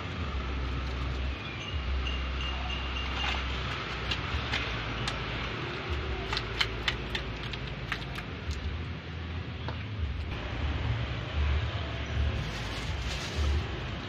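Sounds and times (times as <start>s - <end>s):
plastic bags crinkling: 12.4s - 14.0s.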